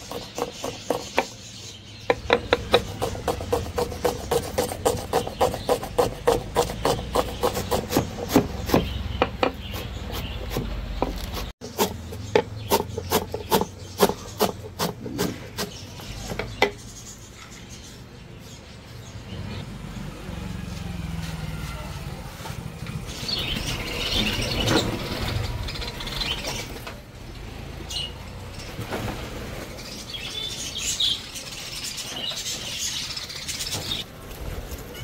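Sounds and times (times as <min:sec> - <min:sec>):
knife chopping on wooden board: 0:00.0 - 0:01.3, 0:02.1 - 0:16.8.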